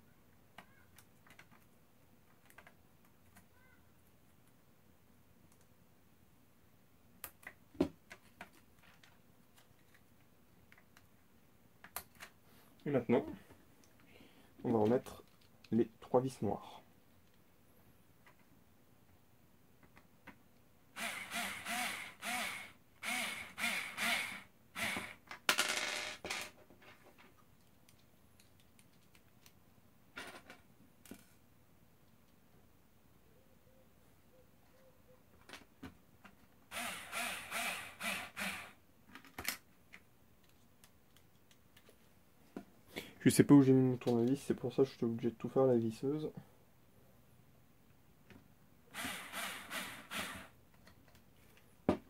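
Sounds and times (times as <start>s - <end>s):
electric screwdriver whirring: 21.0s - 25.2s, 36.7s - 38.8s, 49.0s - 50.5s.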